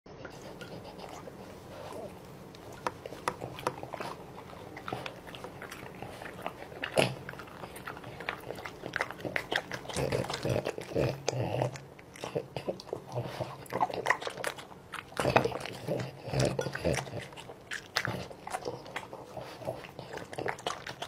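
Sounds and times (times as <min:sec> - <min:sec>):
dog chewing and smacking lips: 0:00.1 - 0:21.0.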